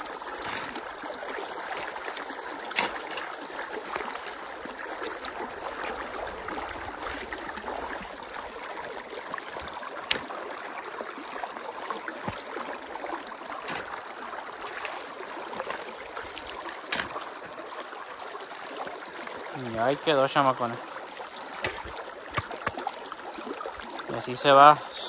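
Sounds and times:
water gurgling through ditch: 0:00.0 - 0:25.0
shovel scraping wet soil: 0:00.1 - 0:04.5, 0:13.6 - 0:14.0, 0:16.8 - 0:17.3, 0:21.6 - 0:22.8.

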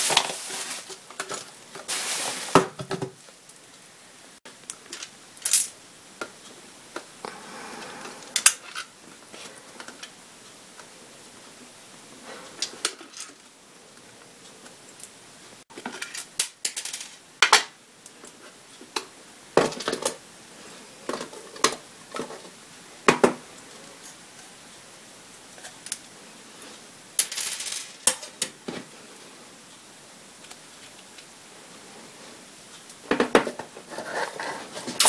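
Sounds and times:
packaging rustling: 0:00.0 - 0:03.2.

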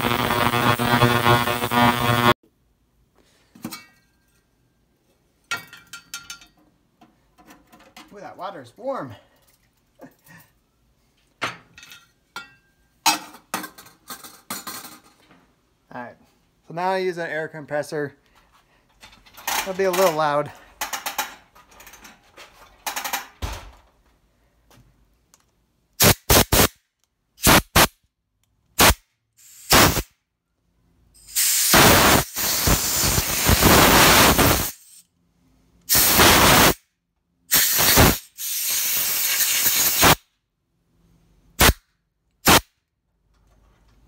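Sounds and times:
compressed air blow gun hissing: 0:28.8 - 0:30.1, 0:31.3 - 0:35.0, 0:35.9 - 0:36.8, 0:37.5 - 0:40.2.

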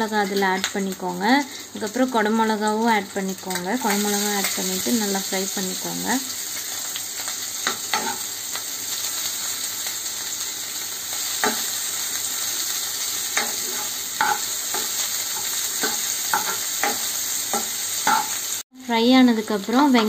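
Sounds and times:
vegetables sizzling in hot oil: 0:00.0 - 0:20.0
spoon scraping and knocking pan: 0:07.6 - 0:08.3, 0:11.3 - 0:11.8, 0:13.2 - 0:18.6.

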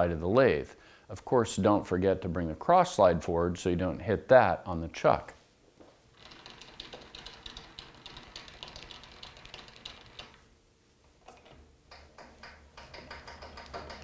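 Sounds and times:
lathe handwheel ticking: 0:06.1 - 0:10.4, 0:11.9 - 0:14.0.

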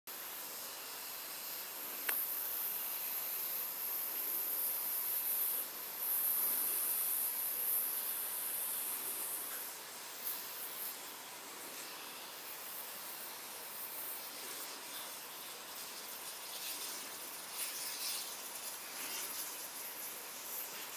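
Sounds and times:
can hissing spray: 0:00.1 - 0:20.9.

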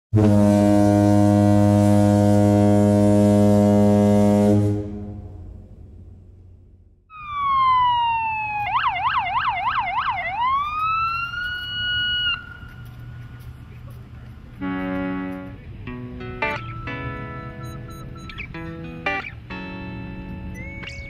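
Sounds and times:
boat horn low blast: 0:00.1 - 0:06.5, 0:14.6 - 0:15.8
electronic siren wailing: 0:07.1 - 0:12.7, 0:20.5 - 0:21.0.

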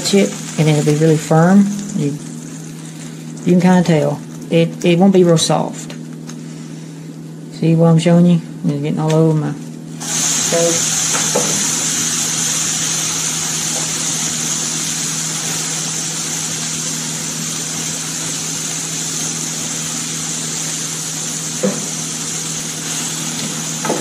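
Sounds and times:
food sizzling in pans: 0:00.0 - 0:04.5, 0:10.0 - 0:24.0.

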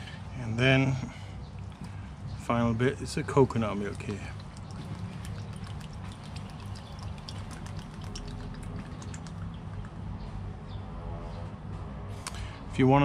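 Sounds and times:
liquid pouring into a skillet: 0:03.7 - 0:09.9.

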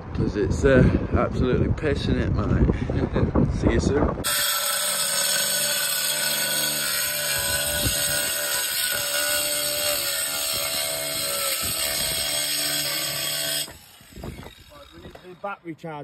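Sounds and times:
angle grinder cutting tile: 0:04.2 - 0:15.6.

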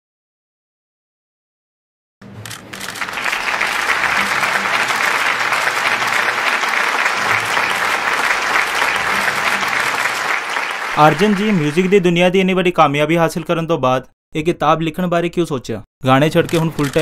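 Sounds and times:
crowd applauding: 0:02.6 - 0:12.3.

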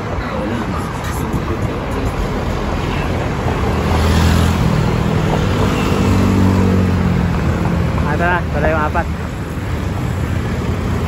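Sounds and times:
road traffic passing: 0:00.0 - 0:11.0
vehicle engine hum: 0:00.0 - 0:11.0.

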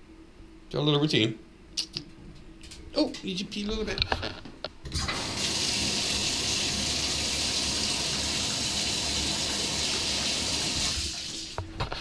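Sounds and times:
water running: 0:04.9 - 0:11.6.

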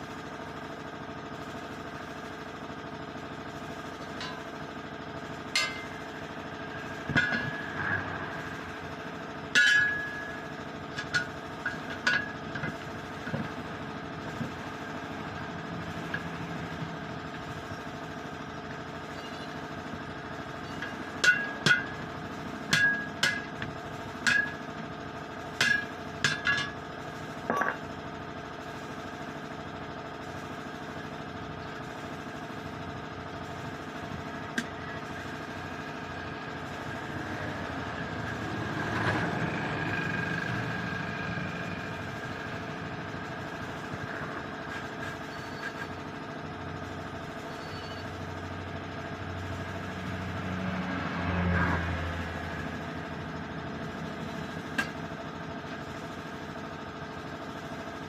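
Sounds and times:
steady low hum: 0:03.4 - 0:26.8
metal clanks on wheel rim: 0:05.6 - 0:06.0, 0:07.1 - 0:07.7, 0:09.5 - 0:13.6, 0:20.6 - 0:24.7, 0:25.6 - 0:26.8, 0:27.5 - 0:27.8.

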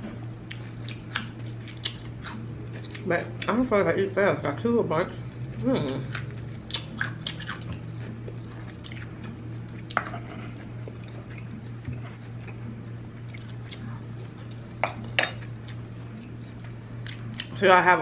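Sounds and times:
crunchy bites and chewing: 0:06.2 - 0:17.6.

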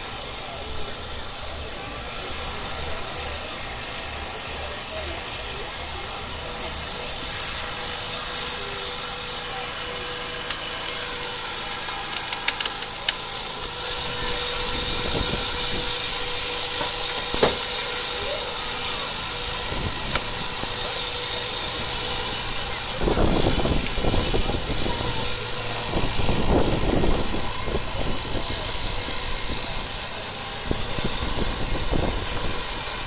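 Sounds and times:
engine running: 0:00.0 - 0:33.0.

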